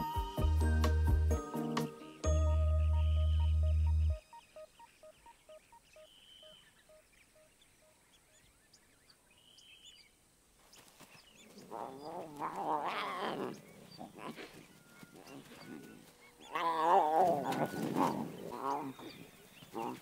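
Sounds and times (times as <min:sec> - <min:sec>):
soft chiming melody: 0:00.0 - 0:05.7
faint bird chirps: 0:02.1 - 0:20.0
lion calling: 0:11.6 - 0:20.0.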